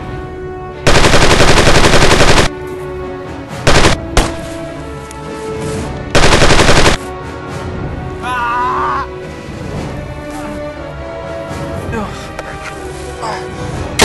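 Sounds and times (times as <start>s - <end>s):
background music: 0.0s - 14.0s
machine-gun fire bursts: 0.9s - 2.5s, 3.7s - 4.4s, 6.2s - 7.0s.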